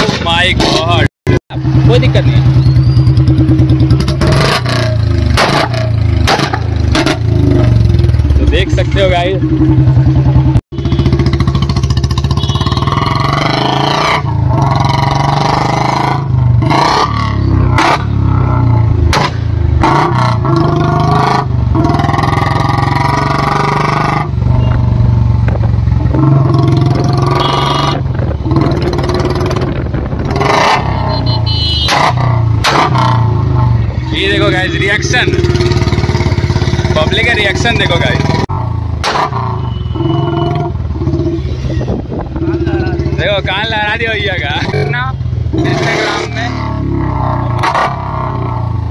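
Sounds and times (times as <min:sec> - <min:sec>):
motorcycle exhaust note: 0:00.7 - 0:48.9.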